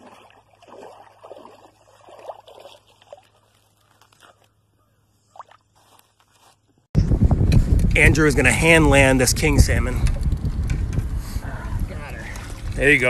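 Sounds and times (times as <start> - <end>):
shallow water sloshing and splashing: 0.0 - 4.6, 5.2 - 6.4.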